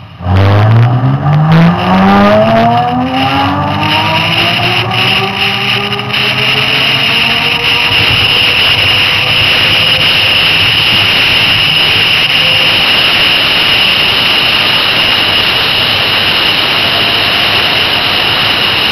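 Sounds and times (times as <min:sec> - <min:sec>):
wind and tyre roar: 0:00.0 - 0:18.9.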